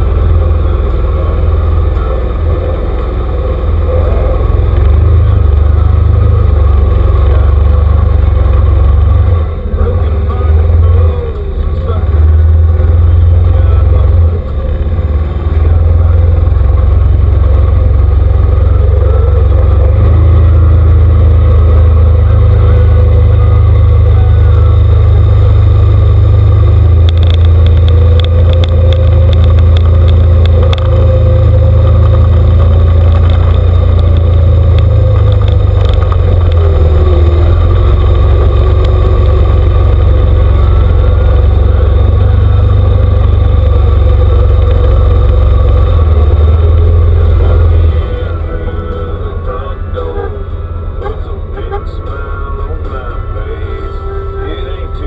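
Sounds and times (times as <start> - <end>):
atv engine rumbling: 0.0 - 55.0
rapid clicks: 26.9 - 40.6.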